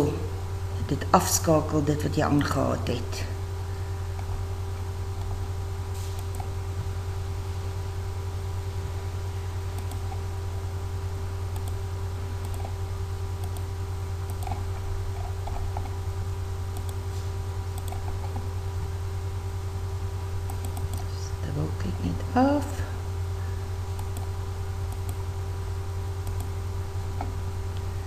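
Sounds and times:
low electrical hum: 0:00.0 - 0:28.0
computer mouse clicking: 0:06.1 - 0:06.6, 0:09.8 - 0:10.2, 0:11.5 - 0:11.8, 0:12.4 - 0:12.8, 0:13.4 - 0:16.0, 0:16.8 - 0:17.0, 0:17.7 - 0:18.5, 0:20.5 - 0:21.1, 0:23.9 - 0:24.3, 0:24.9 - 0:25.2, 0:26.2 - 0:26.5.

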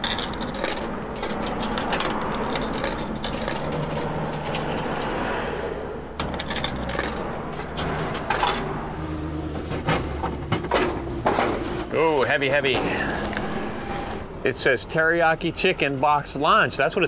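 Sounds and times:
coins clinking into coin slot: 0:00.0 - 0:05.3, 0:06.2 - 0:08.6.

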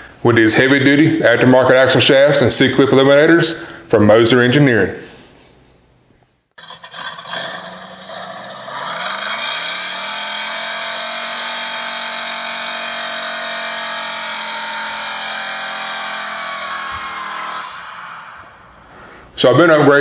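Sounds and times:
engine revving: 0:06.6 - 0:18.7.

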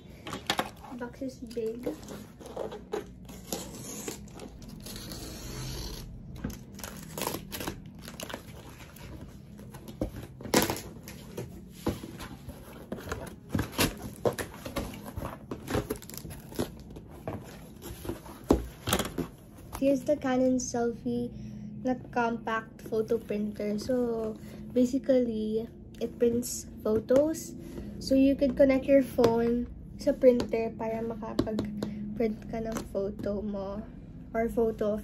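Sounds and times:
tape and plastic tearing: 0:00.4 - 0:11.5, 0:12.1 - 0:19.3.

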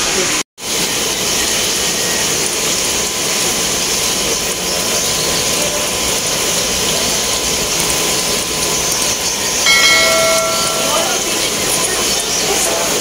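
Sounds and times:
aquarium pumps and water hissing: 0:00.0 - 0:13.0
short pitched tone: 0:09.7 - 0:11.5.

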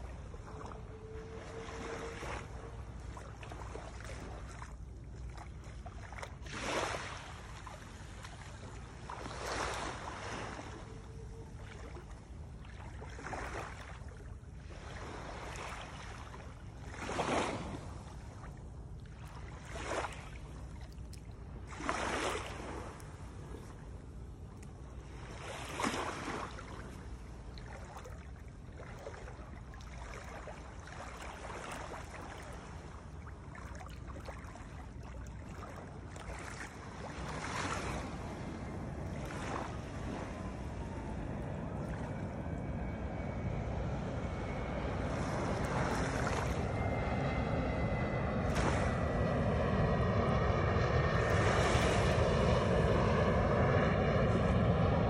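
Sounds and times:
seawater sloshing and splashing: 0:00.0 - 0:55.0
steady low rumble: 0:22.4 - 0:25.8, 0:26.4 - 0:55.0.

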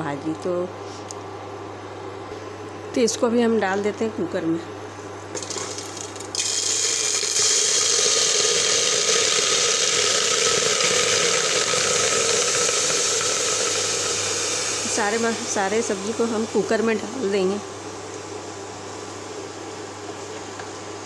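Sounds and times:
vegetables sizzling in a cooker: 0:05.4 - 0:18.0.

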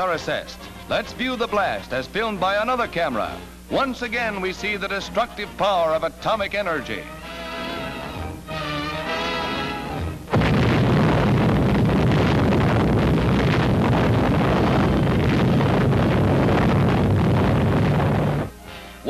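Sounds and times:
music: 0:00.0 - 0:10.4, 0:13.8 - 0:19.0
explosion blast rumbling: 0:10.3 - 0:18.5.

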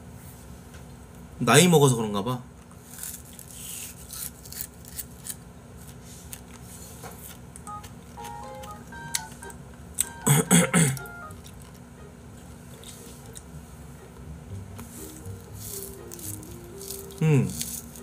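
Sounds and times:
paper tissue rustling: 0:14.8 - 0:18.0.

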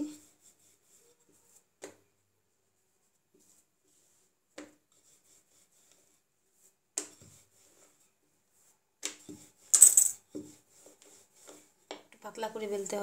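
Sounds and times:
rolling pin rubbing on dough: 0:00.2 - 0:01.8, 0:02.7 - 0:09.7, 0:10.3 - 0:12.0.

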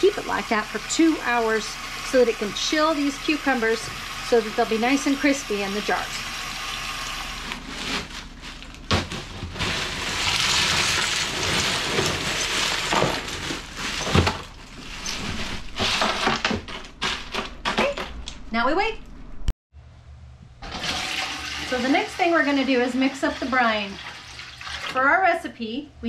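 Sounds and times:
tap water running: 0:00.0 - 0:08.1, 0:09.5 - 0:15.9, 0:20.6 - 0:25.0
ice cubes clattering into water: 0:08.9 - 0:14.7.

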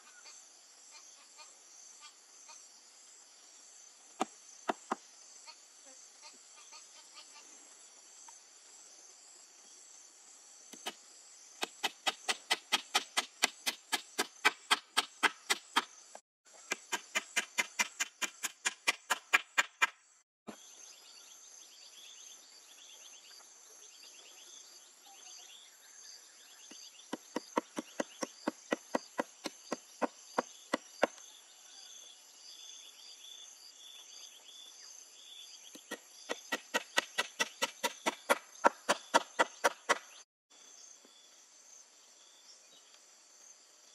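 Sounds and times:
insects droning: 0:00.0 - 0:43.9
hammer striking wooden poles: 0:11.6 - 0:15.9, 0:16.6 - 0:20.0, 0:35.8 - 0:40.1.

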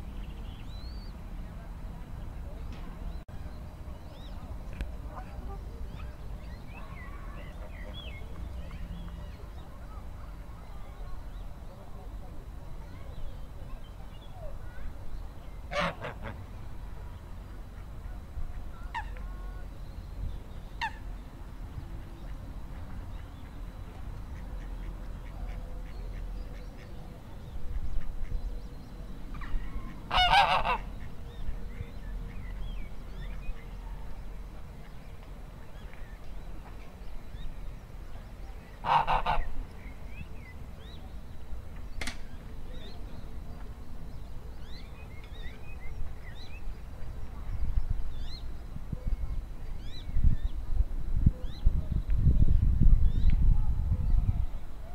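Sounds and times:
goose honking: 0:15.7 - 0:16.4, 0:29.8 - 0:30.9, 0:38.8 - 0:39.5.

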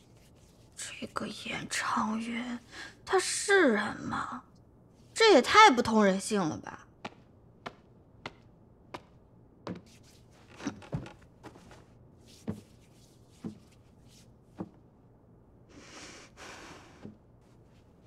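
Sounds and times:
soft knocks and taps: 0:07.0 - 0:10.0, 0:10.6 - 0:12.8, 0:14.5 - 0:14.8.

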